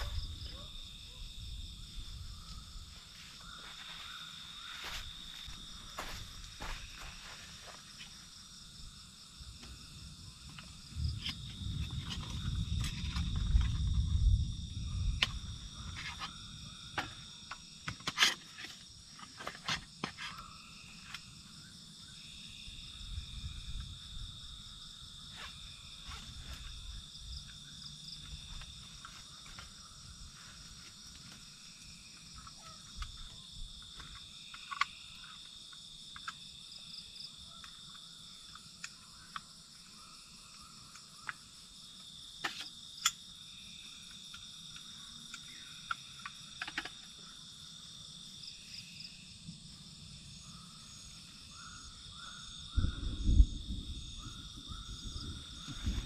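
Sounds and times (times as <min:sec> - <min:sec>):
night insects chorus: 0:00.0 - 0:56.0
camping gear clicks and knocks: 0:15.2 - 0:20.4, 0:30.6 - 0:36.5, 0:44.1 - 0:47.3.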